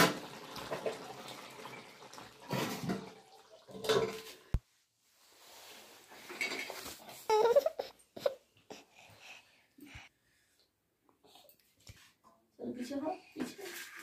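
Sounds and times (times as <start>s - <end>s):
steel cookware clattering: 3.8s - 4.4s.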